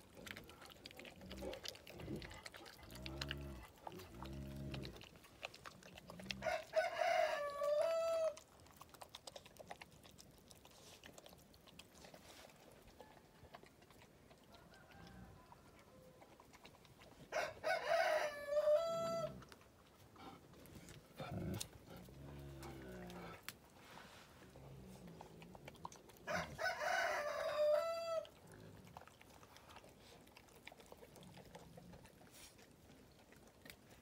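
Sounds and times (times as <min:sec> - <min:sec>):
rooster crowing: 0:06.4 - 0:08.4, 0:14.5 - 0:16.2, 0:17.3 - 0:19.4, 0:26.3 - 0:28.3.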